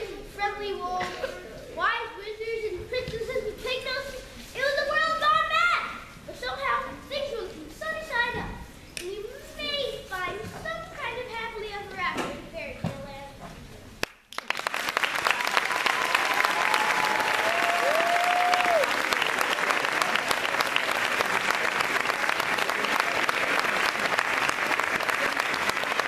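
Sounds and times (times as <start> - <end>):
audience applauding: 14.3 - 26.0.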